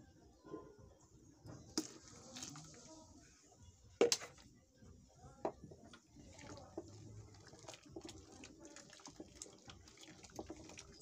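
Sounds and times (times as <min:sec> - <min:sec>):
wooden stick stirring porridge: 0:05.5 - 0:11.0.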